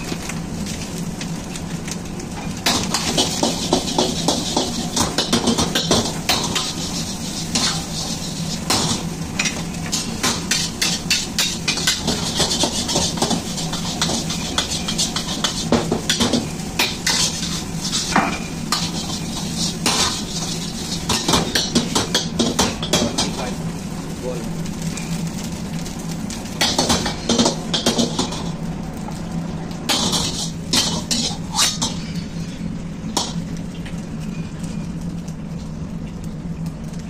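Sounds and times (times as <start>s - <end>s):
rice sizzling: 0.0s - 37.0s
steady low hum: 0.0s - 37.0s
metal ladle scraping wok: 2.9s - 22.4s, 29.9s - 32.5s.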